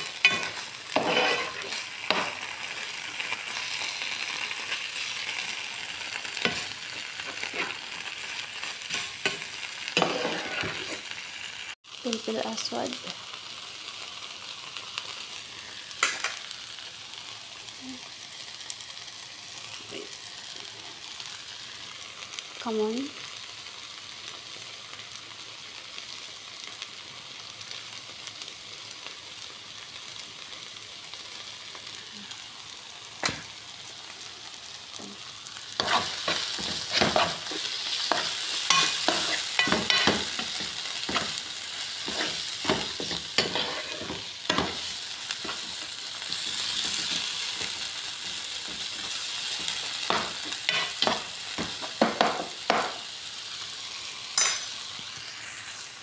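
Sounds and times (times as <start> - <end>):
spatula scraping a pan: 0.0 - 2.8, 6.3 - 11.1, 35.8 - 52.9
vegetables sizzling in a frying pan: 0.0 - 56.0.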